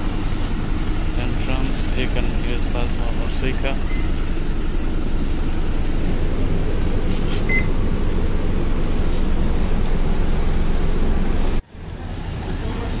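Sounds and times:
air conditioning hum: 0:00.0 - 0:13.0
bus engine idling: 0:00.0 - 0:13.0.

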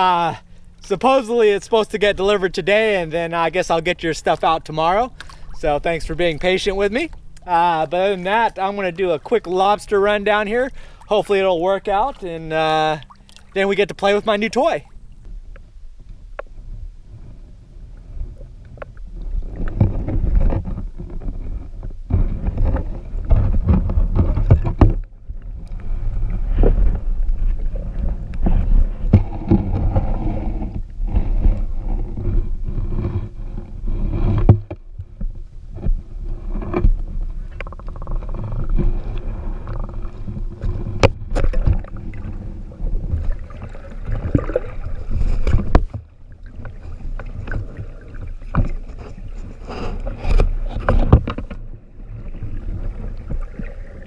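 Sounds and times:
underwater rumble: 0:00.0 - 0:54.0.

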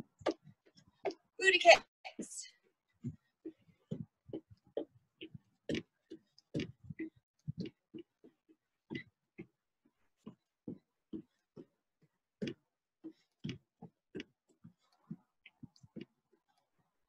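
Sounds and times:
feet thumping on wooden boards: 0:03.0 - 0:09.6.

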